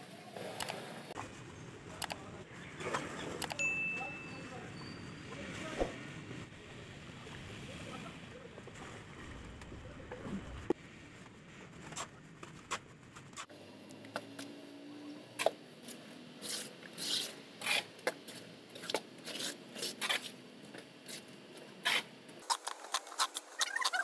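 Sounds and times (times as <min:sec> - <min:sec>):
trowel scraping wet mortar: 0:16.4 - 0:20.4.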